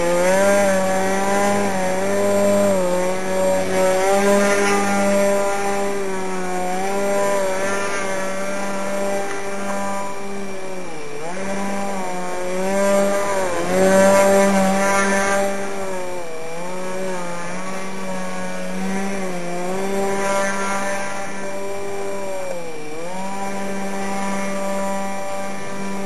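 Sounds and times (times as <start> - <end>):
model plane propeller buzzing: 0.0 - 26.0.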